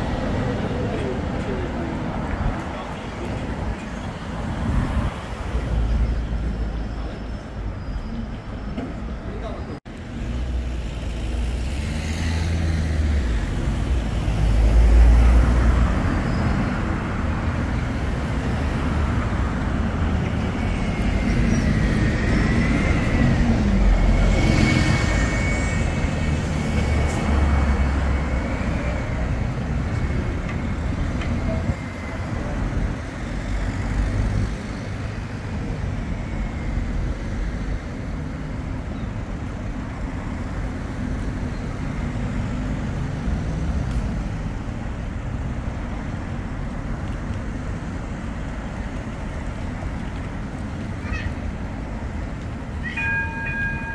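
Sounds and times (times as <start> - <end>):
rumble of road traffic: 0.0 - 53.9
bus passing close by: 10.0 - 53.9.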